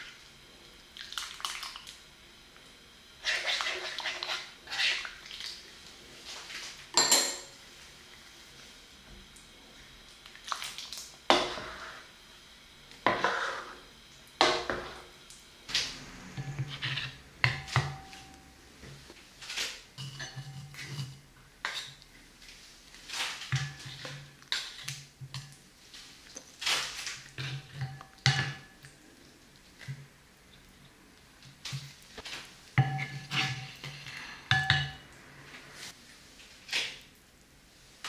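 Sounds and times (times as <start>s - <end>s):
ladle scraping a pot: 16.3s - 18.3s, 19.5s - 22.0s, 32.8s - 35.0s.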